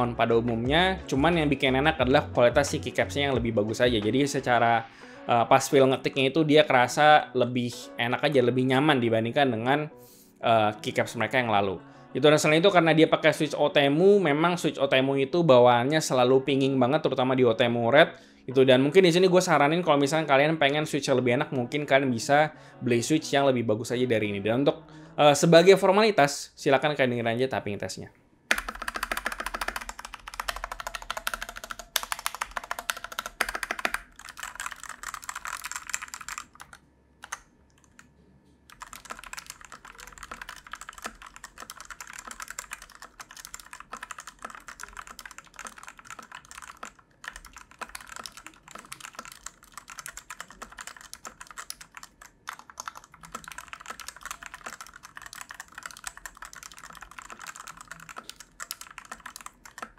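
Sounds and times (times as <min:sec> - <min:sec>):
mechanical keyboard keystroke clacks: 0:28.5 - 0:38.0, 0:38.7 - 0:59.9.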